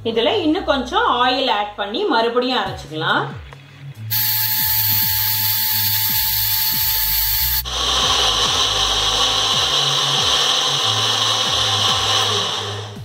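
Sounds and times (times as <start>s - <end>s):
mixer grinder motor whirring: 4.1s - 13.0s.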